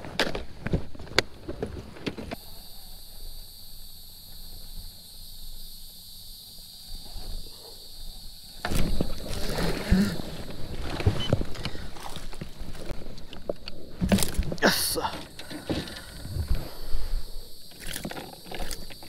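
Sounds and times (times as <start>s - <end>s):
handling noise: 8.6s - 19.0s.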